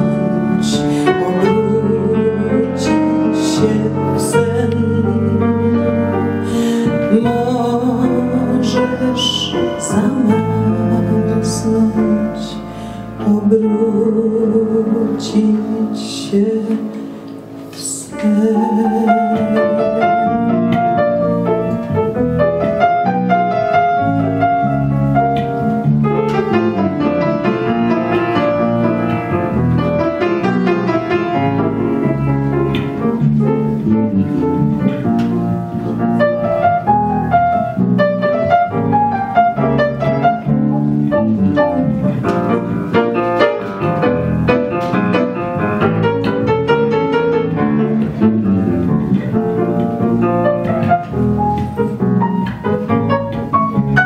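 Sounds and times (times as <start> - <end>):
piano playing: 0.0 - 54.0.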